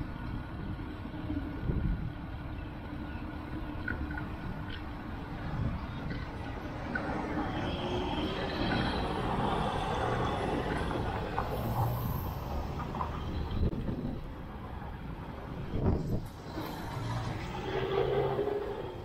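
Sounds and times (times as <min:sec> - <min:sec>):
city road traffic: 0:00.0 - 0:19.0
motor vehicle passing close: 0:15.8 - 0:19.0.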